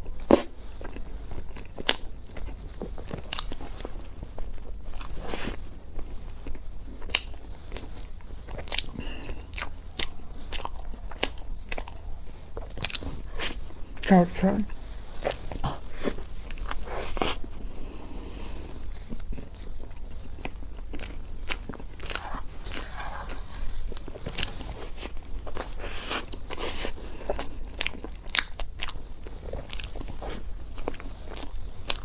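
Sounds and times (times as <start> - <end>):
crunchy bites and chewing: 0.0 - 14.0, 15.2 - 32.0.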